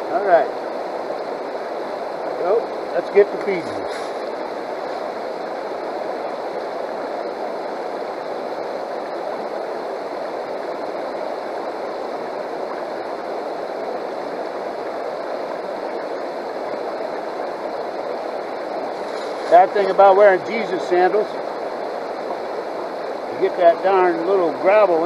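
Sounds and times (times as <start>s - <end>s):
river water rushing over rocks: 0.0s - 25.0s.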